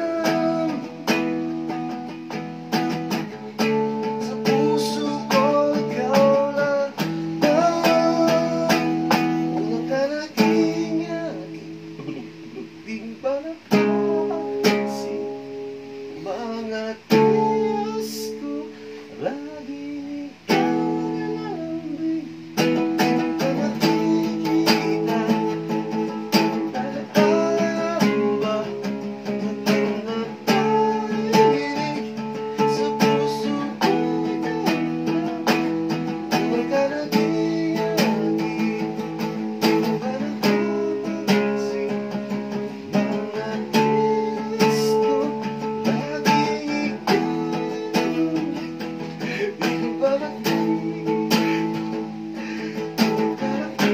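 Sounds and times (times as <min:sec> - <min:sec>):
acoustic guitar strumming: 0:00.0 - 0:53.9.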